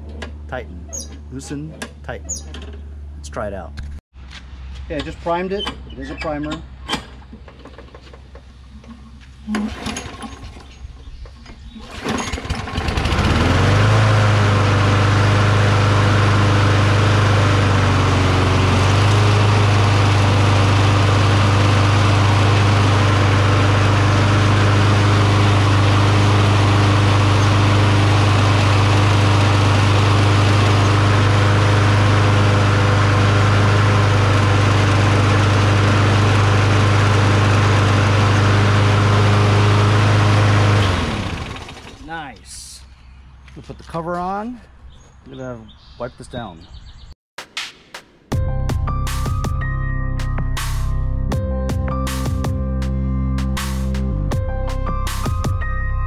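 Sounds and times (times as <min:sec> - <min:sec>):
lawn mower engine running: 0:04.6 - 0:42.4.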